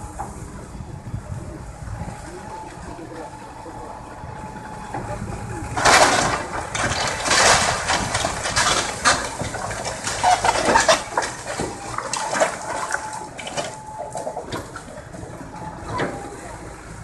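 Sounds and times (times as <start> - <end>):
masonry crashing onto rubble: 5.8 - 14.8.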